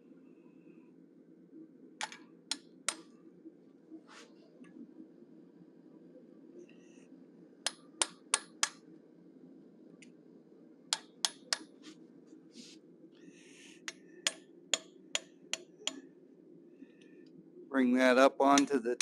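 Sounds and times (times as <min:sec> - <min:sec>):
hammer tapping chisel on steel: 0:13.9 - 0:16.0, 0:18.6 - 0:18.8.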